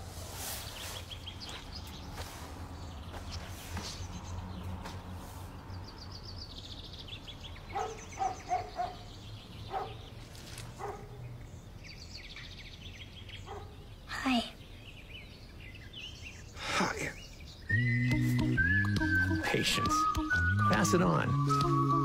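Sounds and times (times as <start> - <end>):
birds chirping: 0.0 - 22.0
dog barking: 7.7 - 9.1, 9.7 - 10.0, 10.8 - 11.2, 13.4 - 13.8.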